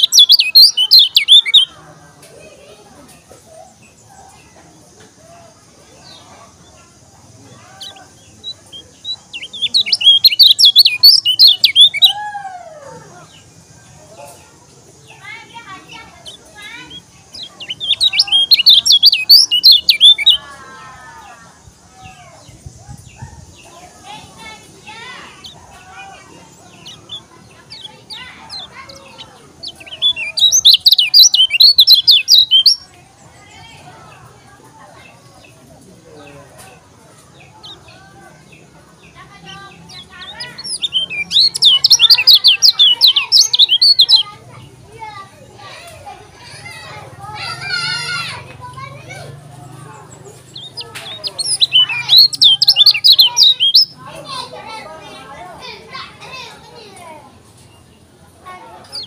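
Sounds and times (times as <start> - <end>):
bird singing whistled notes: 0.0 - 1.7, 7.8 - 12.2, 16.2 - 20.4, 26.7 - 32.9, 39.9 - 44.2, 50.5 - 54.0.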